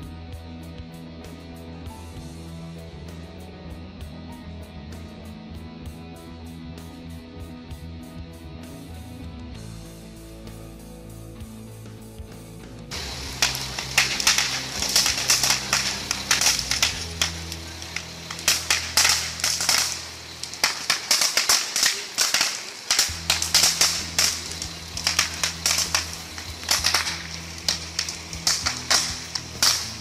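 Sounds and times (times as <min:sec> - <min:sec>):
fire crackling and popping: 0:12.9 - 0:30.0.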